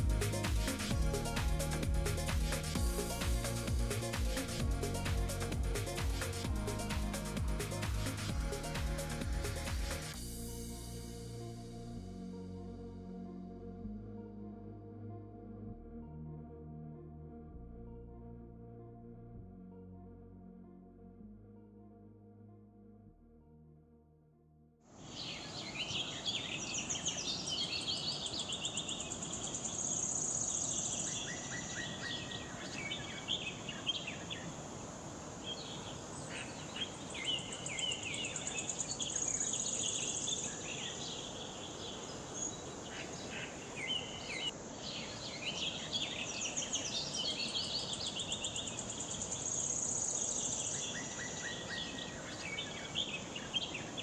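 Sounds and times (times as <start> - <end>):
rushing falling water: 0.0 - 10.6
birds chirping and trilling: 25.1 - 34.6, 35.4 - 54.0.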